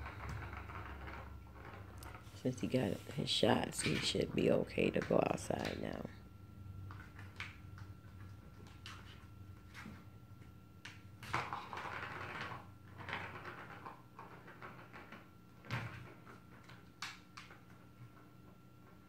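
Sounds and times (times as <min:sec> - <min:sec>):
ball rattling round track: 0:00.0 - 0:06.2, 0:10.9 - 0:19.0.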